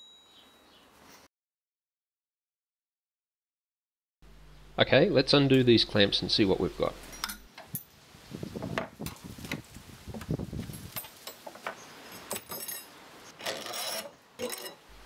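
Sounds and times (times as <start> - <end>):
spanner clinking on metal: 7.0 - 7.9, 12.3 - 12.9.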